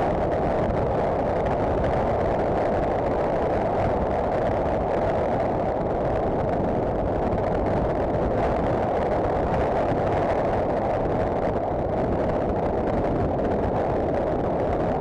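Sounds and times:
muffled wind rush: 0:00.0 - 0:15.0.

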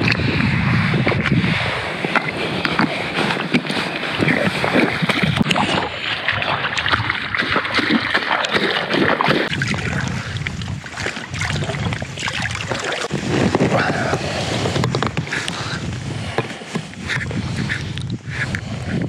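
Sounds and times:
water lapping and splashing: 0:00.0 - 0:19.0.

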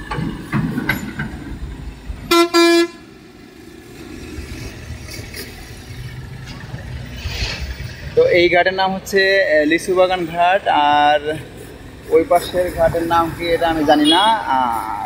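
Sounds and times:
low engine rumble: 0:00.0 - 0:15.0
vehicle horn honking: 0:02.3 - 0:03.0.

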